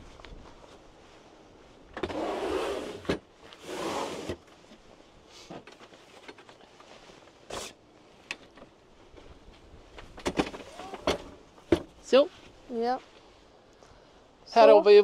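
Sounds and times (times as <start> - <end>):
folding chairs scraping: 2.0 - 4.5, 7.4 - 7.8.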